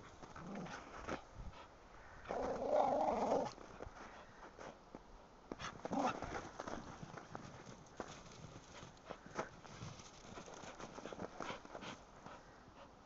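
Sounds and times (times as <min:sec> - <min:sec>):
scuffs and crunches in snow: 0:05.6 - 0:11.1.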